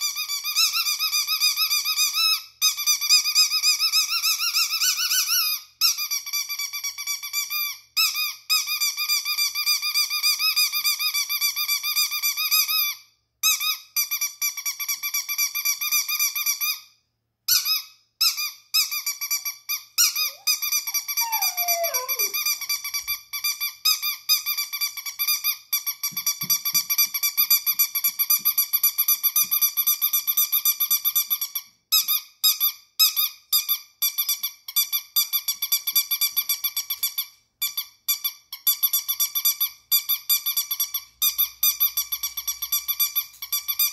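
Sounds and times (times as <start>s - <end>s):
rubber dog toy squeaking: 17.5s - 23.5s.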